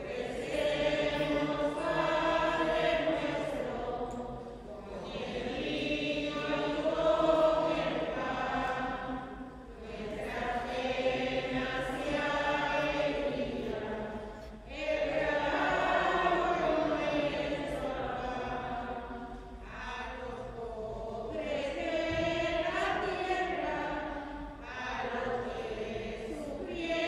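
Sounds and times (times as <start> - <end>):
voices singing a hymn: 0.0 - 27.0.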